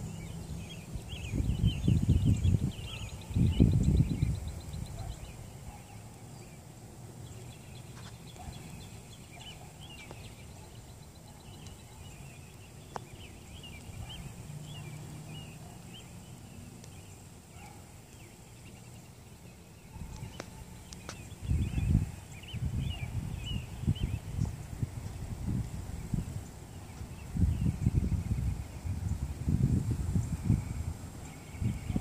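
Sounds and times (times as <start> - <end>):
small birds chirping: 0.0 - 32.0
low rumble on microphone: 21.4 - 32.0.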